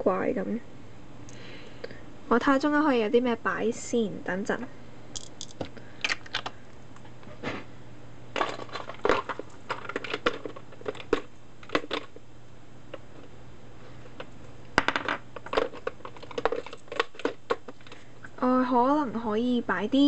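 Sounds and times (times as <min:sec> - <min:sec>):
steady low hum: 0:00.0 - 0:20.0
small objects clicking and clattering: 0:05.2 - 0:06.5, 0:08.4 - 0:12.2, 0:14.8 - 0:18.0.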